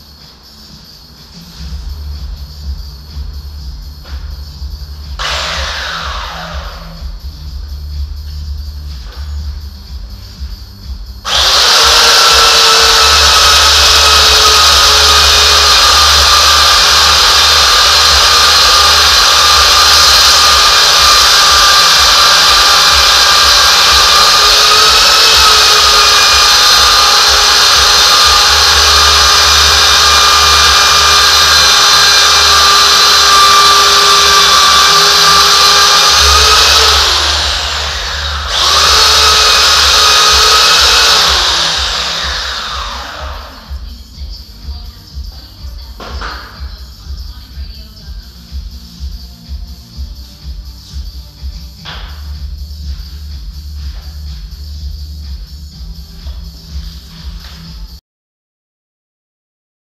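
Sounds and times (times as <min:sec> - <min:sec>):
belt sander on wood: 0:05.1 - 0:07.0, 0:11.2 - 0:43.8.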